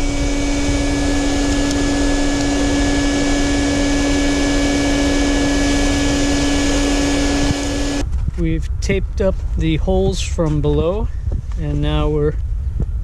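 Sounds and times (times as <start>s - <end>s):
vacuum cleaner running: 0.0s - 8.0s.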